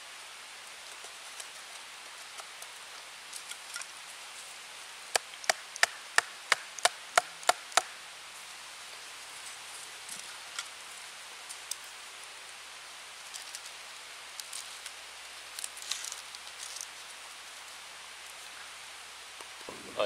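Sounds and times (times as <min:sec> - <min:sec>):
sticks being handled: 0:00.9 - 0:04.0, 0:13.2 - 0:17.2.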